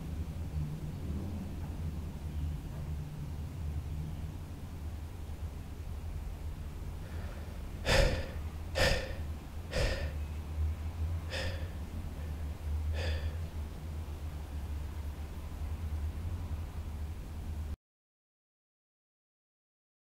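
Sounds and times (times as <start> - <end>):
steady low hum: 0.0 - 17.8
man gasping for breath: 7.0 - 10.2, 11.3 - 13.5.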